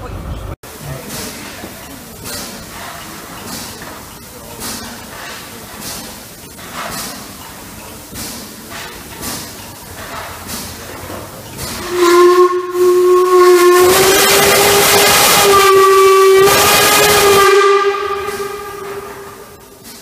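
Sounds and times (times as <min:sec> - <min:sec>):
loud hiss of escaping steam: 0:00.9 - 0:20.0
steam locomotive whistle: 0:11.6 - 0:20.0.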